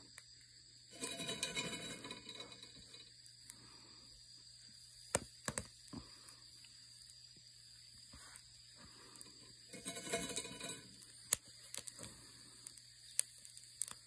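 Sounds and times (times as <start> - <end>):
nuts popping in a roasting pan: 0.1 - 3.7, 4.9 - 7.4, 9.1 - 14.0
scraping rustle: 1.0 - 3.0, 9.7 - 11.0.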